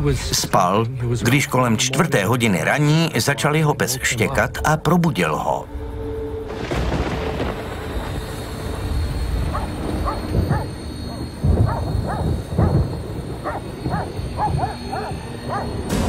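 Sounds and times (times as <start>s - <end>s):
dog barking: 9.5s - 15.9s.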